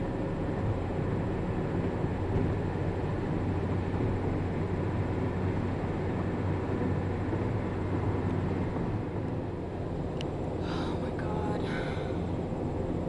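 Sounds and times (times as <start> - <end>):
car road and engine noise: 0.0 - 13.0.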